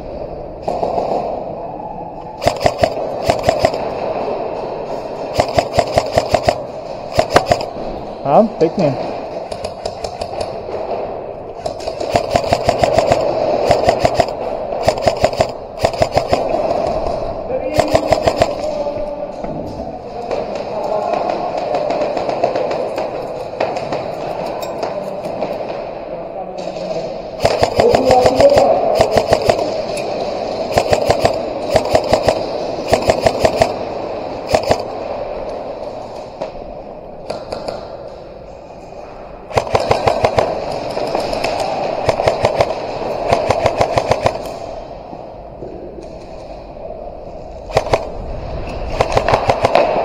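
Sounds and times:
airsoft guns firing bursts: 2.4 - 4.2, 5.2 - 7.8, 9.4 - 11.0, 11.6 - 18.8, 27.4 - 35.0, 39.5 - 44.7, 47.7 - 48.2, 48.8 - 50.0.

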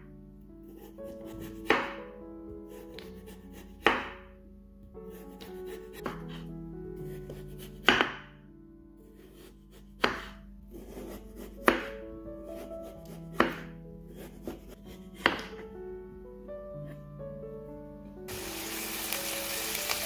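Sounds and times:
knife cutting on wooden board: 0.7 - 2.0, 5.1 - 6.5, 9.2 - 12.0, 12.6 - 15.6.

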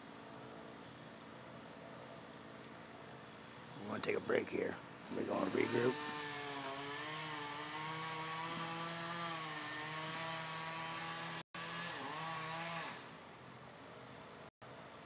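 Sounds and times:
chainsaw cutting wood: 5.3 - 13.1.

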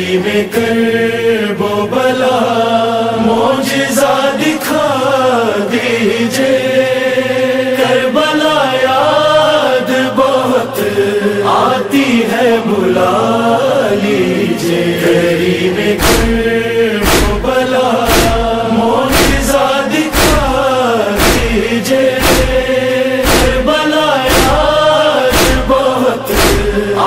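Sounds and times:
devotional chanting: 0.0 - 27.0
deep thumps: 16.0 - 23.7, 24.3 - 24.7, 25.3 - 26.9.

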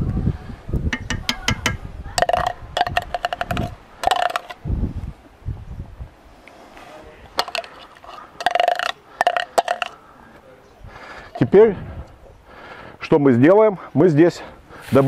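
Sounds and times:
low thumps: 0.8 - 4.9
metal spoon clinking on container: 1.0 - 4.6, 7.4 - 10.0.

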